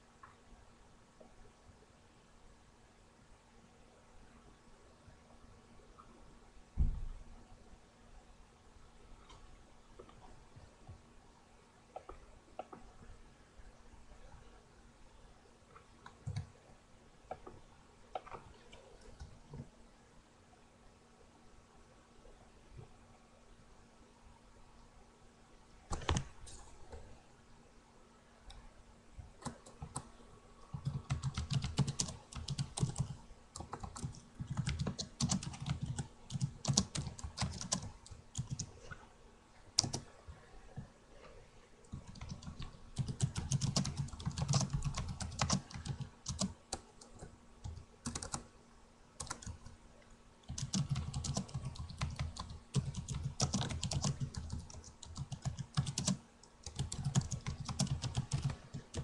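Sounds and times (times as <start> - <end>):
computer keyboard typing: 16.0 - 16.5, 18.1 - 19.4, 25.9 - 26.3, 29.4 - 30.1, 30.7 - 38.7, 39.8 - 40.1, 41.9 - 48.5, 49.2 - 49.7, 50.4 - 59.0.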